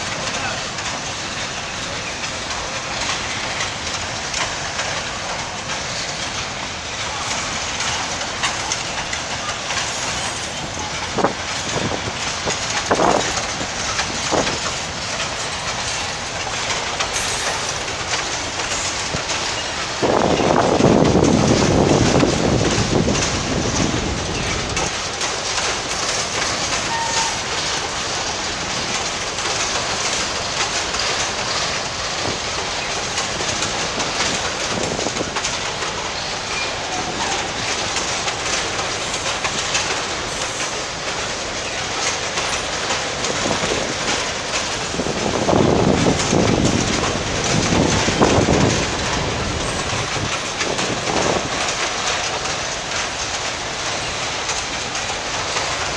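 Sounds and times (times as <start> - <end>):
train wheels rumbling on rails: 0.0 - 55.9
wheel squeals: 9.6 - 11.0, 17.2 - 18.2, 26.5 - 27.6.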